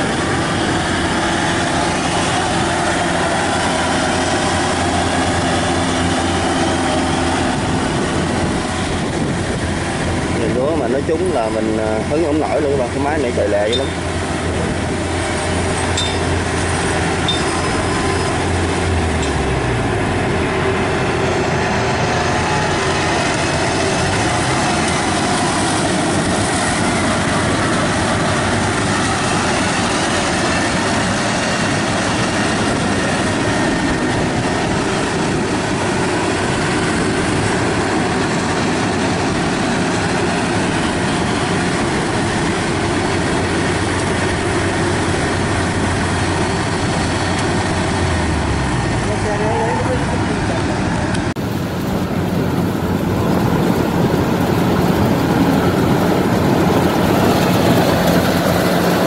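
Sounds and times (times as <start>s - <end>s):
combine harvester engine: 0.0s - 59.0s
threshing clatter: 51.0s - 59.0s.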